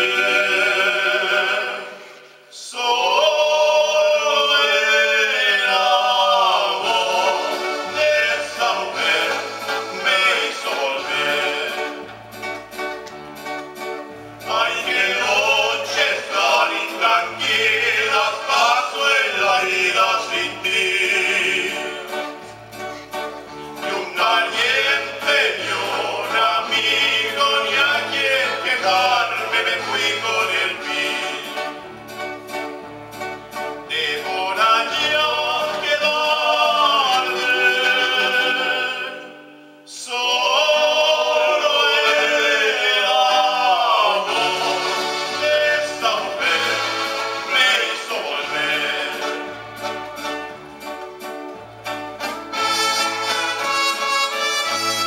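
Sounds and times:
male trio singing in harmony: 0:00.0 - 0:12.2, 0:14.4 - 0:22.8, 0:23.6 - 0:32.2, 0:33.8 - 0:50.5
acoustic guitar: 0:00.0 - 0:55.0
keyboard: 0:00.0 - 0:55.0.

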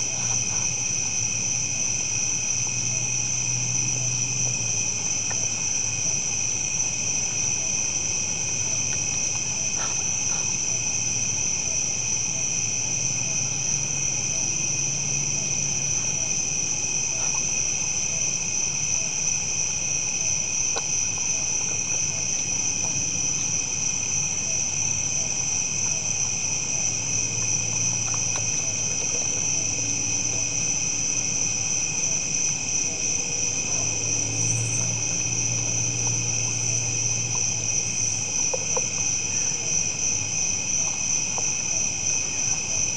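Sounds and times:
night insects trilling: 0:00.0 - 0:42.9.

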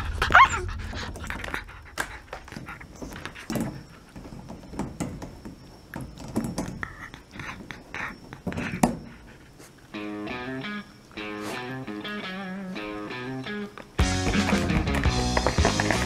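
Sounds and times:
dog panting: 0:00.0 - 0:04.7, 0:06.6 - 0:10.0
dog fussy vocalising: 0:06.6 - 0:10.0
music: 0:10.0 - 0:16.0.

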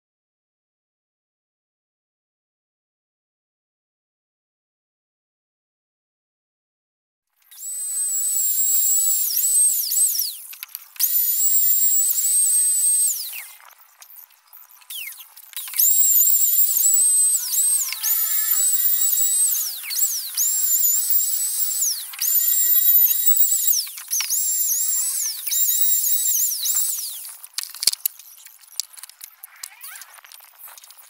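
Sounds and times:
electric router whining: 0:07.5 - 0:30.8.

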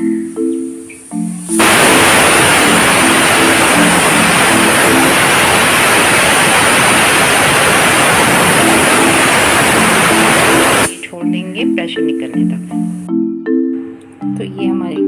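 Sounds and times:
pressure cooker steam hissing: 0:01.6 - 0:11.0.

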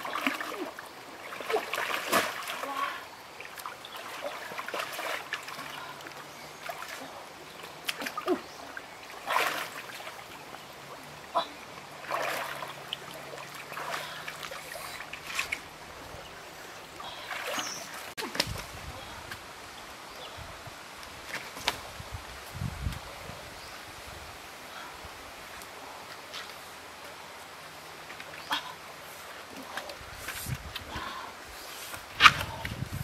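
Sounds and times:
person wading through water: 0:00.0 - 0:19.2.

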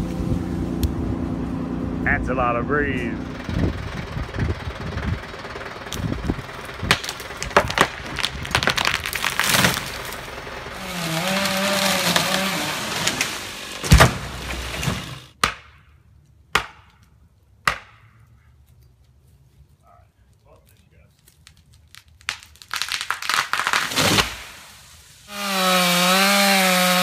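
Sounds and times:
wood cracking and branches snapping: 0:05.9 - 0:15.6, 0:20.4 - 0:24.7
tree crashing onto ground: 0:06.8 - 0:10.3, 0:10.9 - 0:15.2.

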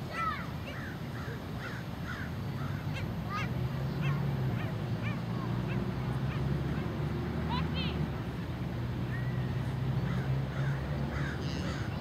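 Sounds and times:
seabirds calling: 0:00.1 - 0:07.0, 0:10.0 - 0:12.0.

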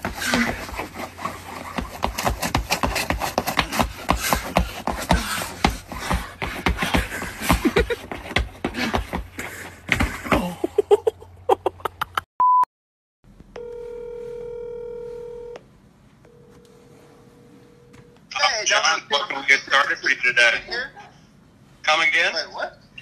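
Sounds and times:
shoes scraping on ice: 0:00.0 - 0:10.3
short high beep: 0:12.4 - 0:12.7
phone ringing tone: 0:13.6 - 0:15.6, 0:16.3 - 0:18.2.

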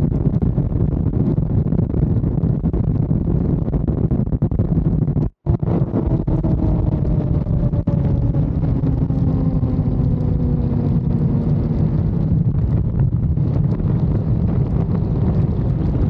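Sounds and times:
wind rush on microphone: 0:00.0 - 0:16.0
motorcycle engine slowing: 0:05.4 - 0:12.6.

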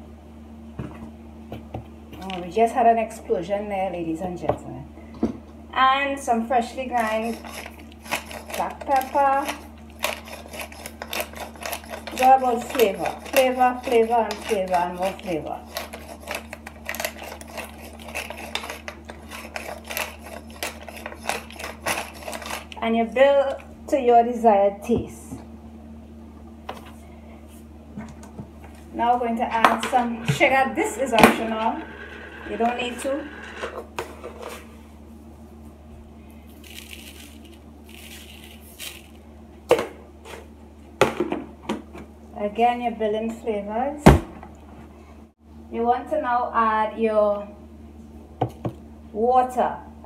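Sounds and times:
pepper mill grinding: 0:06.9 - 0:22.8, 0:36.5 - 0:39.2.

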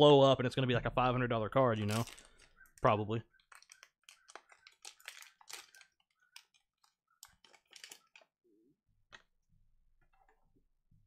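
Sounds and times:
plastic foil wrapper crinkling: 0:01.8 - 0:08.3.

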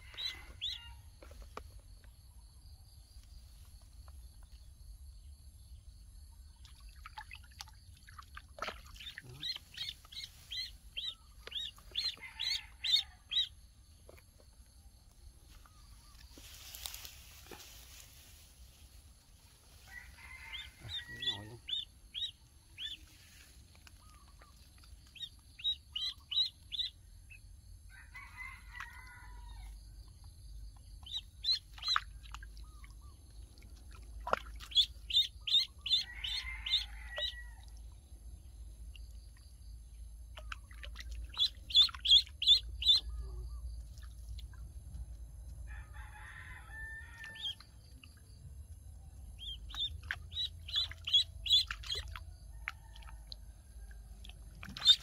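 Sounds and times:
duckling peeping: 0:00.1 - 0:00.9, 0:09.0 - 0:13.5, 0:20.5 - 0:23.1, 0:24.0 - 0:27.0, 0:31.0 - 0:32.4, 0:34.3 - 0:37.3, 0:40.4 - 0:43.4, 0:49.4 - 0:52.1, 0:54.6 - 0:55.0.

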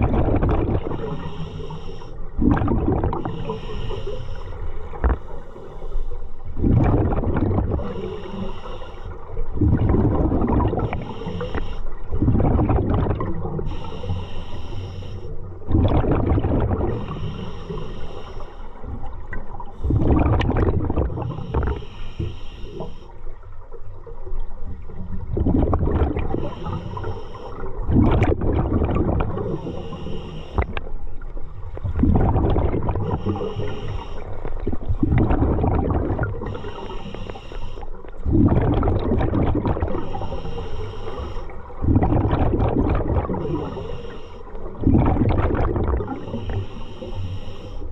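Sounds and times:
hissing regulator inhalations: 0:01.0 - 0:02.2, 0:03.2 - 0:06.4, 0:07.8 - 0:09.3, 0:10.8 - 0:12.0, 0:13.6 - 0:15.4, 0:16.9 - 0:18.9, 0:21.2 - 0:23.2, 0:26.3 - 0:27.7, 0:29.3 - 0:30.8, 0:33.0 - 0:34.6, 0:36.4 - 0:38.0, 0:40.0 - 0:41.8, 0:43.4 - 0:44.8, 0:46.0 - 0:47.9
bubbly diver exhalations: 0:35.0 - 0:36.5.

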